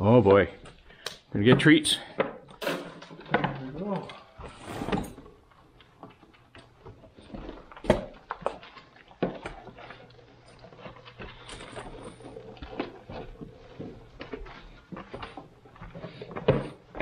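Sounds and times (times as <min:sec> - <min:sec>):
goat eating: 0:05.3 - 0:17.0.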